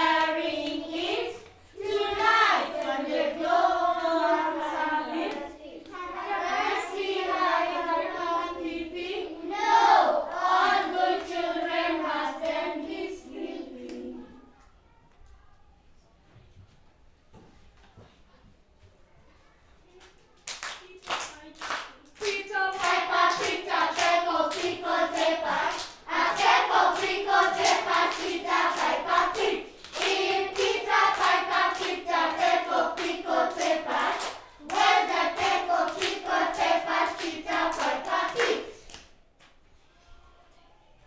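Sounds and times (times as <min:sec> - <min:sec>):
children singing in unison: 0:00.0 - 0:14.4, 0:22.2 - 0:38.8
hands clapping a beat: 0:20.0 - 0:39.6.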